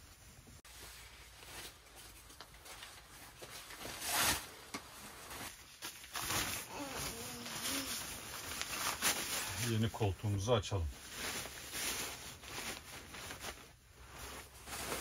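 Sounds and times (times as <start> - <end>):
fabric bag rustling and scraping: 0.6 - 9.9, 11.0 - 15.0.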